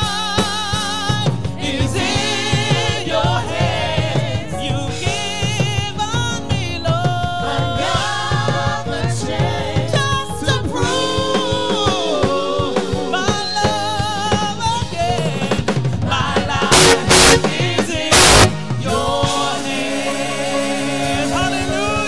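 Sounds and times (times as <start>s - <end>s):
band with drum kit: 0.0s - 22.0s
live gospel singing: 0.0s - 22.0s.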